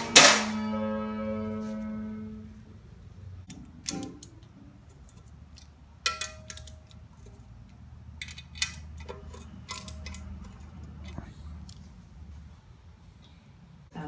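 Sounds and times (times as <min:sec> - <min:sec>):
hand tools tapping metal: 0:05.1 - 0:07.4, 0:08.2 - 0:11.2.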